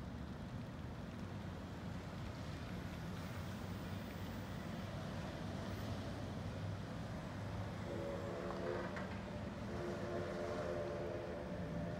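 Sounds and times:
distant steam locomotive whistle: 0:07.8 - 0:11.9.

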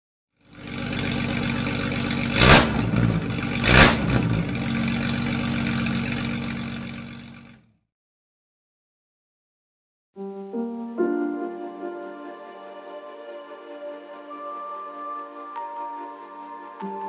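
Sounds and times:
vehicle engine running: 0:00.4 - 0:07.7.

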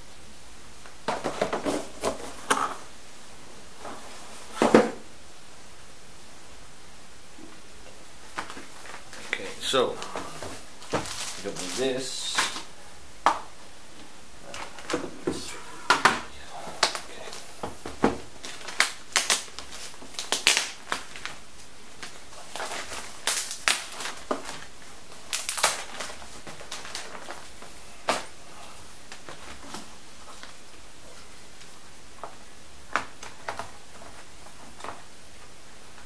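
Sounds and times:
plastic wrapping crinkling: 0:08.2 - 0:36.0.

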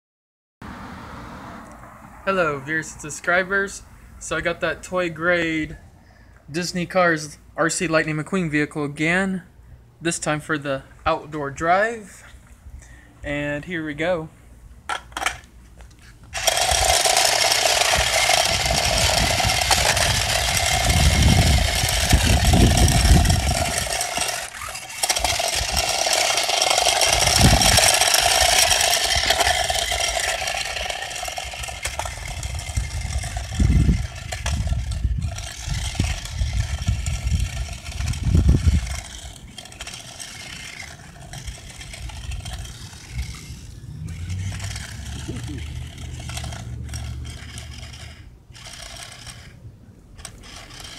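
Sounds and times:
plastic tyres on concrete: 0:14.8 - 0:50.9
toy car motor whirring: 0:14.9 - 0:49.6, 0:50.2 - 0:50.9
low rumbles: 0:16.2 - 0:50.8.

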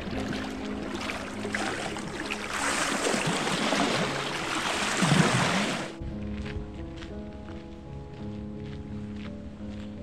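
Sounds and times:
water lapping against rocks: 0:00.0 - 0:06.0
wave splashing over rocks: 0:01.1 - 0:06.0.

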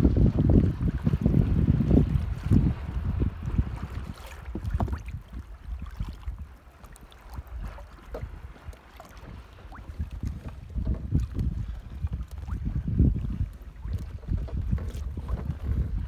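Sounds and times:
water lapping against hull: 0:00.0 - 0:16.0
wind buffeting microphone: 0:00.0 - 0:16.0.

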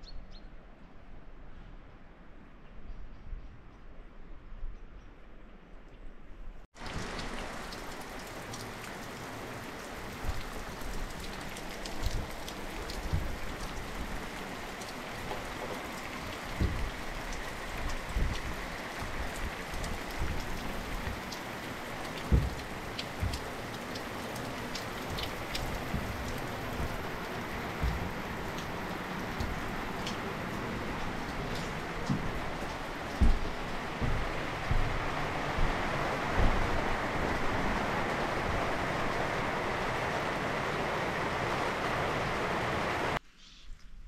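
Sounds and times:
rain drops tapping: 0:06.8 - 0:43.2
low thuds: 0:10.2 - 0:14.3, 0:15.2 - 0:37.8.

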